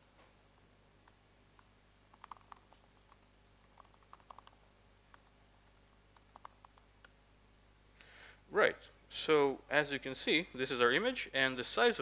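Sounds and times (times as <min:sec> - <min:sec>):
laptop keyboard clicks: 0:02.1 - 0:05.3, 0:06.2 - 0:06.9.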